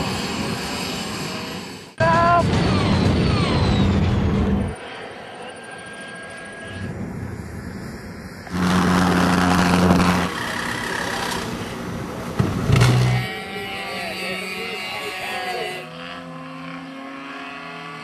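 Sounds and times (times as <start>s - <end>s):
loud jet burst: 0.0s - 4.8s, 8.4s - 11.6s
jet engine drone: 0.0s - 16.1s.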